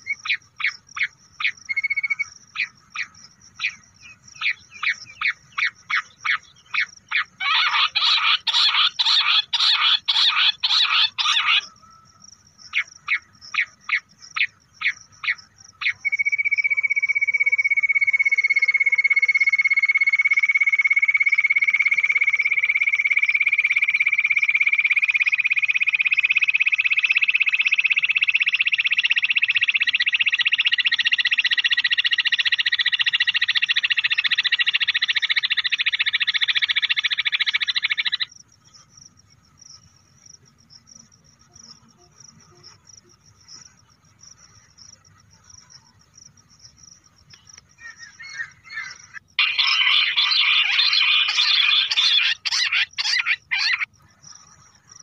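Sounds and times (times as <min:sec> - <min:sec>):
high insect hum: 0:00.0 - 0:55.0
quail call from phone: 0:05.2 - 0:12.1, 0:47.8 - 0:53.9.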